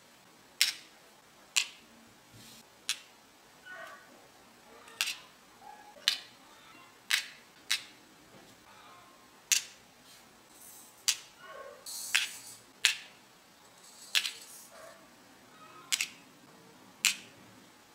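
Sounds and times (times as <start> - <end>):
sharp plastic clicks: 15.9 - 16.2.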